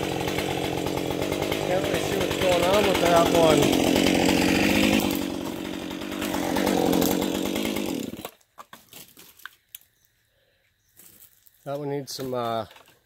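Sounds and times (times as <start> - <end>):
chainsaw running: 0.0 - 8.4.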